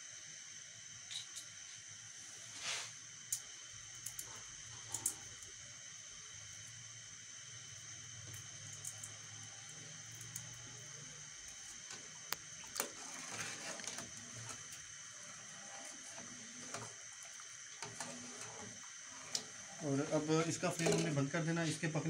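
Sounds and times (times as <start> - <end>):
ladle stirring syrup: 8.7 - 21.2
liquid swishing: 12.6 - 20.8.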